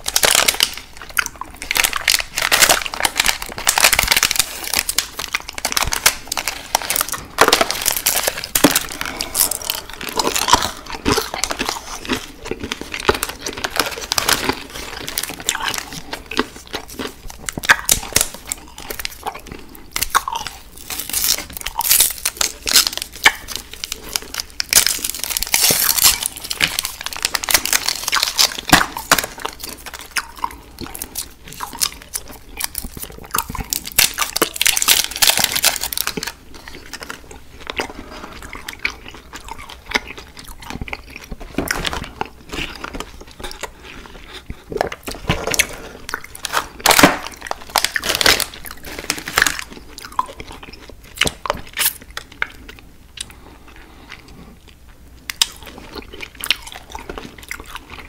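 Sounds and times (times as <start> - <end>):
wrapper crinkling: 0.0 - 19.4, 20.0 - 38.3, 44.9 - 52.4
chewing and crunching candy: 0.0 - 58.0.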